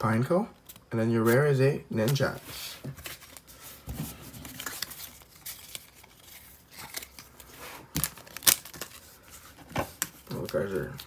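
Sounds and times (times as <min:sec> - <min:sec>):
foil wrapper crinkling: 0:04.4 - 0:11.0
sharp wrapper crackles: 0:04.5 - 0:09.2.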